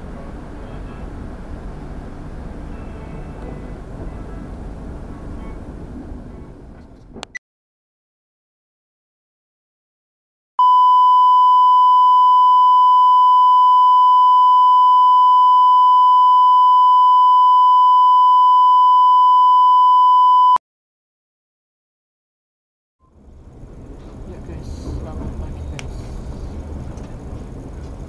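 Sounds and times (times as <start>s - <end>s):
steady electronic beep: 10.6s - 20.6s.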